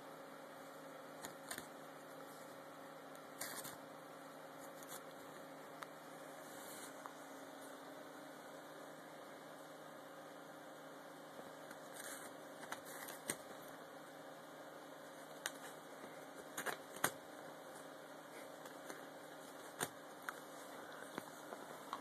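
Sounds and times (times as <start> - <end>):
faint steady hiss: 0.0 - 22.0
paper crackling and rustling: 11.7 - 13.5.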